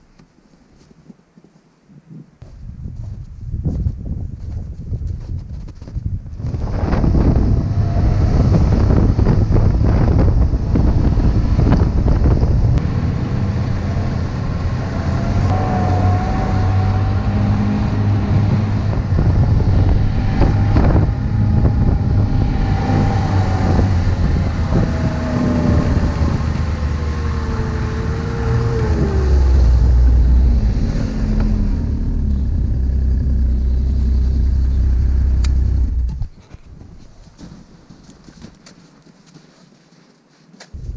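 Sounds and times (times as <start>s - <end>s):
snowmobile engine whine: 6.4s - 36.4s.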